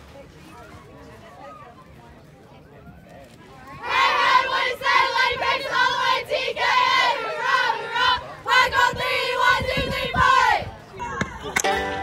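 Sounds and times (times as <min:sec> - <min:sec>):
women chanting a cheer: 0:03.8 - 0:10.7.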